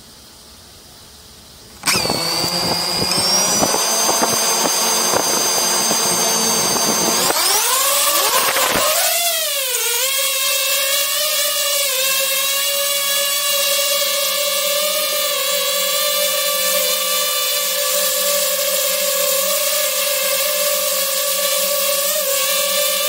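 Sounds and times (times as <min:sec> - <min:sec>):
drone motors whining: 0:01.8 - 0:12.8.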